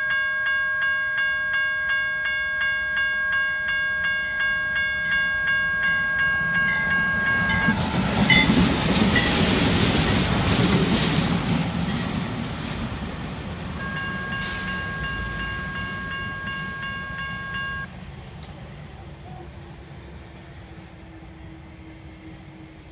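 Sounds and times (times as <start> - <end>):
crossing bell ringing: 0.0 - 10.3, 13.6 - 17.9
diesel locomotive engines rumbling: 0.0 - 22.9.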